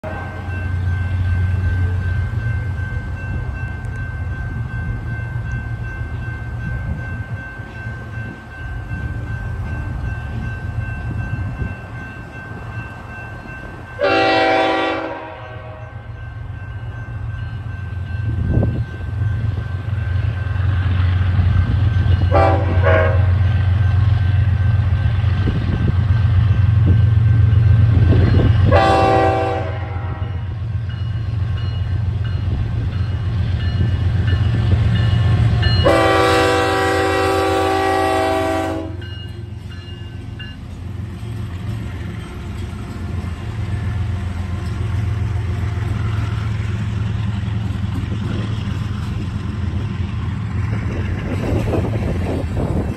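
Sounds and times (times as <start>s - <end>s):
train air horn blasts: 0.0s - 0.6s, 14.0s - 16.1s, 22.3s - 23.4s, 28.6s - 30.5s, 35.8s - 39.0s
diesel locomotive engine rumble: 0.0s - 52.9s.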